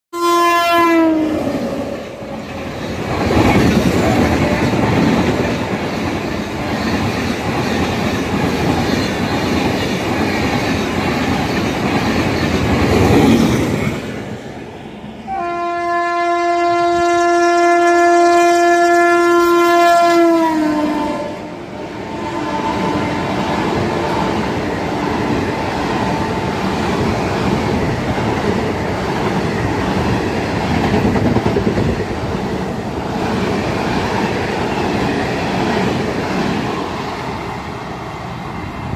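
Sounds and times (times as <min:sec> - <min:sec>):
train horn: 0:00.1 - 0:02.0, 0:15.2 - 0:26.5
train wheels clacking on rails: 0:02.1 - 0:14.3, 0:22.8 - 0:38.9.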